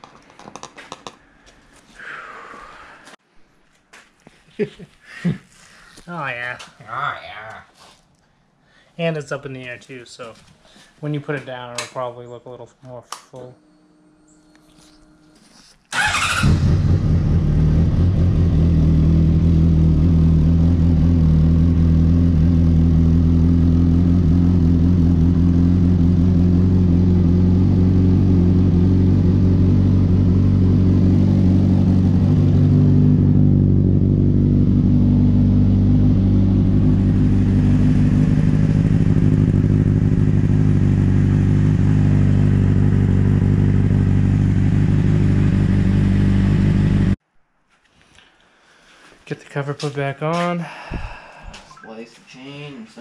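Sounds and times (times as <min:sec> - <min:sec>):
motorcycle engine idling: 0:16.0 - 0:47.2.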